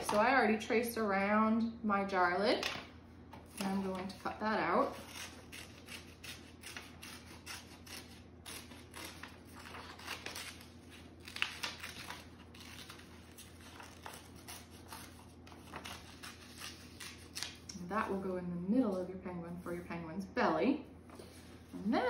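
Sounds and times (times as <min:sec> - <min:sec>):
scissors snipping paper: 0:04.9 - 0:17.7
paper rustling: 0:08.6 - 0:17.6.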